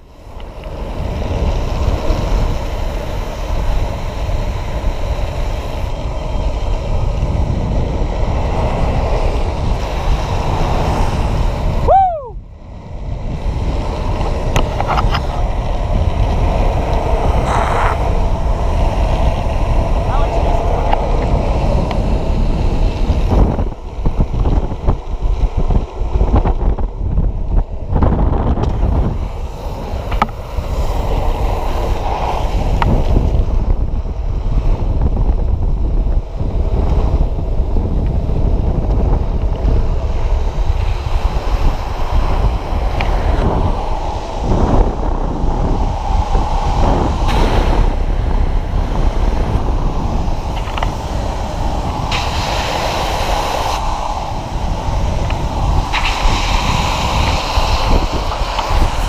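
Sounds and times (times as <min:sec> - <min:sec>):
longboard wheels rolling on asphalt: 0:00.0 - 0:59.0
wind buffeting microphone: 0:00.0 - 0:59.0.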